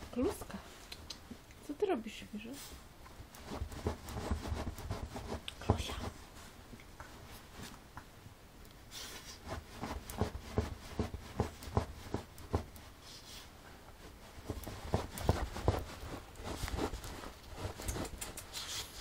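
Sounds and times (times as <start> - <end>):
dog thumping and scraping on floor: 3.4 - 6.3, 9.4 - 12.9, 14.0 - 19.0.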